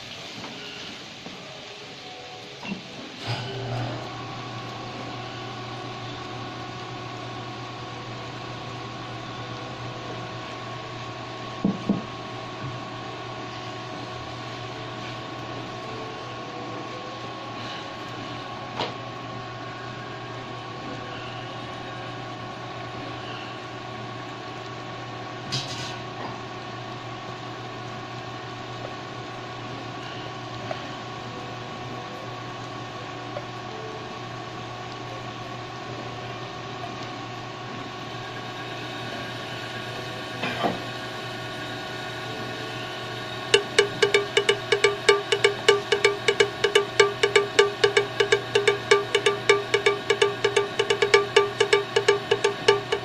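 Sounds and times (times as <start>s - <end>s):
electric fan motor humming: 1.8s - 53.0s
spatula knocking against wok: 43.6s - 53.0s.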